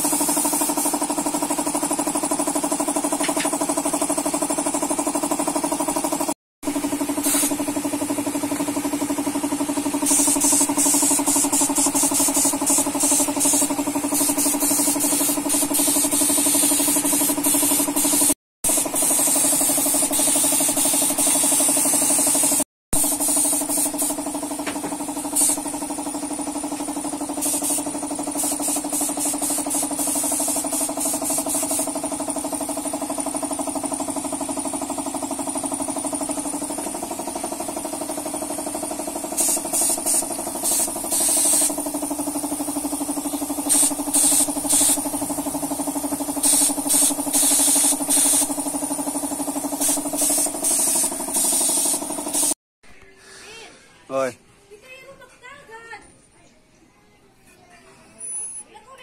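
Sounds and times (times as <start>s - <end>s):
spray gun hissing: 0.0s - 4.3s, 6.9s - 8.8s, 9.4s - 32.5s, 36.5s - 52.6s
air compressor motor humming: 0.0s - 52.6s.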